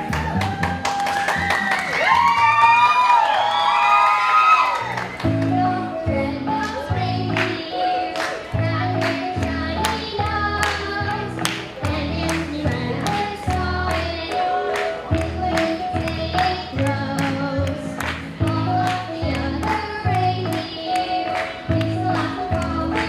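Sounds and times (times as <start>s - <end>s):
child singing into a microphone: 5.3s - 23.0s.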